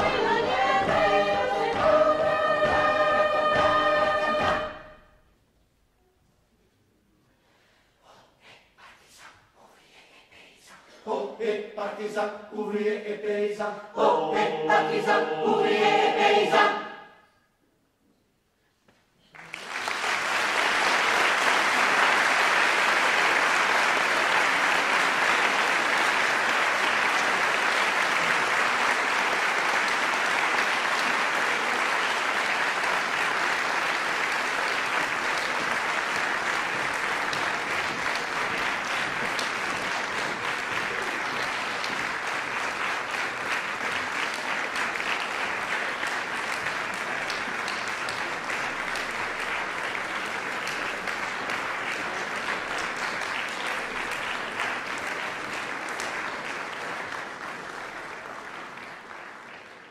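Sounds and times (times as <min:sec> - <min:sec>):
audience applauding: 0:19.2 - 0:59.9.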